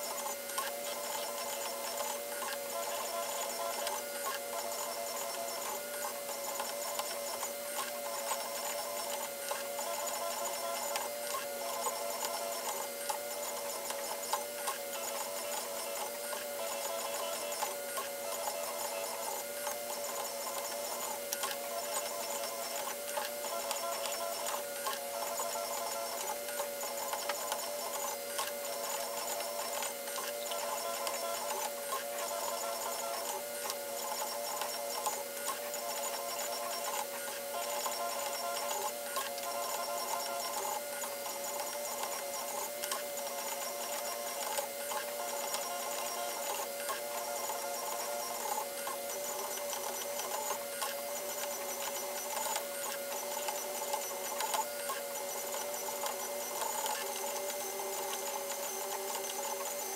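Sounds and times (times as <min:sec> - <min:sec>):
printer stepper motors whining: 0:00.0 - 0:59.9.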